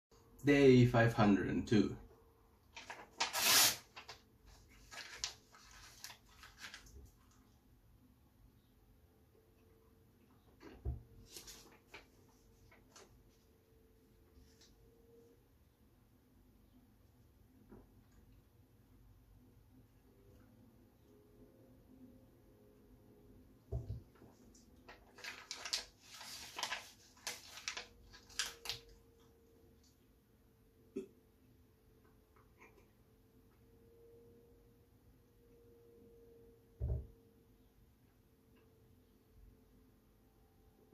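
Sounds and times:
paper ripping: 2.8 - 4.2, 4.8 - 6.9, 25.2 - 28.9.

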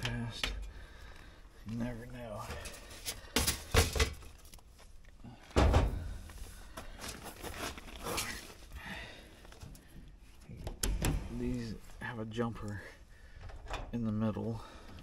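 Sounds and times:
heavy thump: 5.6 - 6.2.

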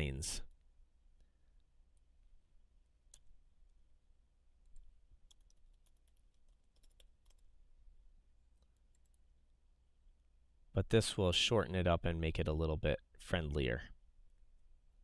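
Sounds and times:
faint keyboard keys clicking: 4.6 - 7.5.

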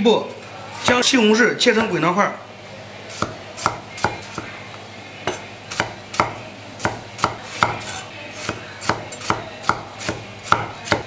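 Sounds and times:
knife chopping on wooden board: 3.2 - 4.5, 5.3 - 11.0.

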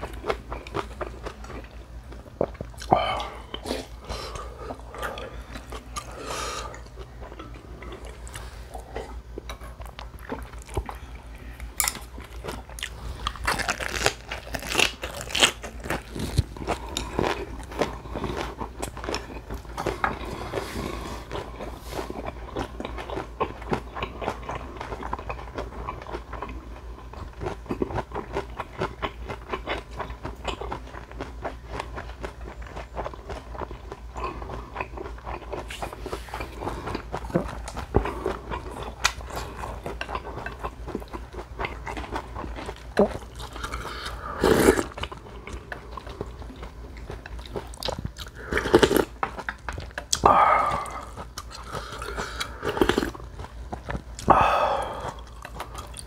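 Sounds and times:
crisp crunching of cabbage leaf: 11.8 - 19.7.

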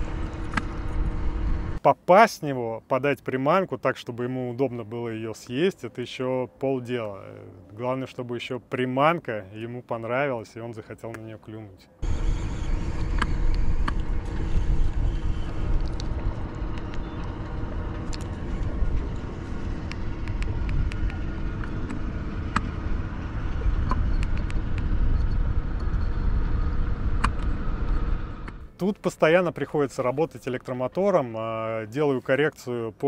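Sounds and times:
motorboat engine and water rumble: 0.0 - 1.8, 12.0 - 28.8
sharp clicks and slaps: 0.4 - 0.8, 19.8 - 22.7.

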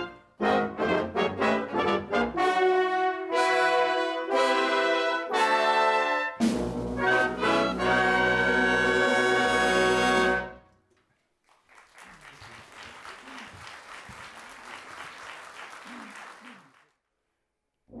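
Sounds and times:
faint applause: 10.9 - 17.0.

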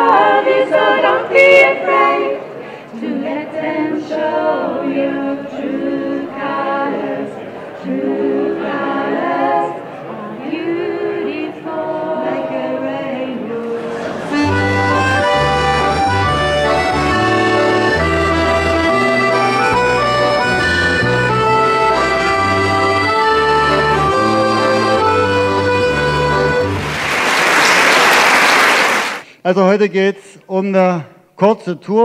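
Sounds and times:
women singing a cappella: 0.0 - 14.1
accordions playing a tune: 13.4 - 27.0.

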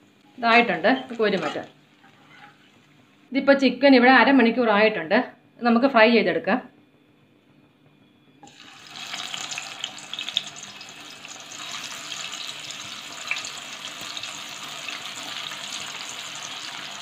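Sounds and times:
chicken sizzling in hot oil: 8.4 - 17.0.

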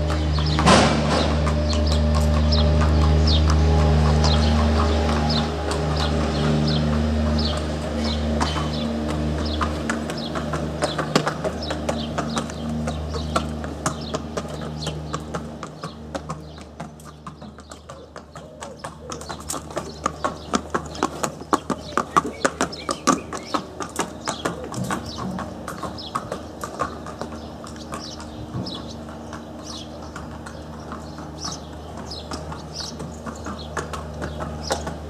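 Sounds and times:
steady low hum: 0.0 - 18.2
horse hooves clip-clopping: 0.0 - 35.0.

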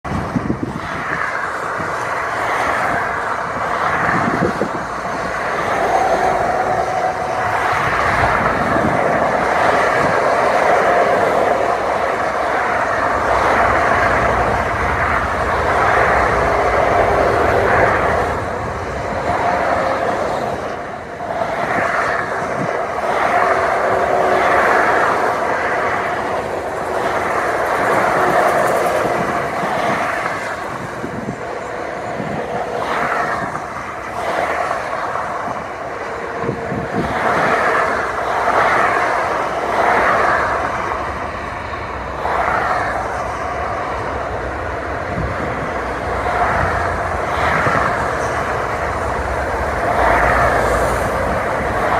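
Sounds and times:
heavy truck engines: 0.0 - 51.9
traffic passing close by: 0.0 - 51.9.

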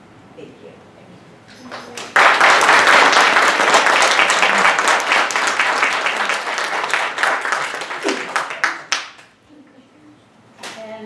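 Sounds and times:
audience applauding: 1.6 - 9.3.

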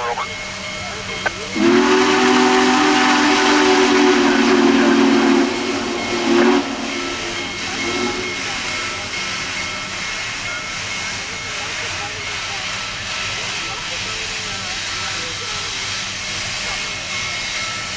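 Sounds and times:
steam hissing: 0.0 - 17.9
steam whistle blasts: 1.6 - 8.8.

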